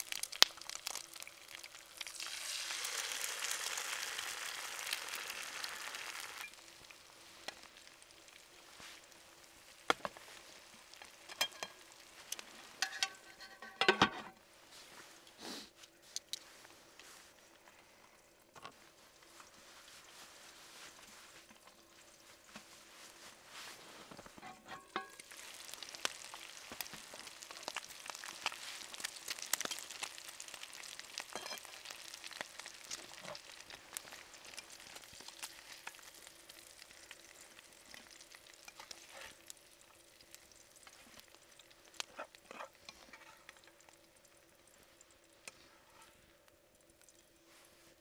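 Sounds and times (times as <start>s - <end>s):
food sizzling in frying pan: 0.0s - 14.0s, 19.1s - 47.3s
spatula scraping pan: 12.8s - 14.3s, 24.4s - 25.2s, 31.3s - 31.8s.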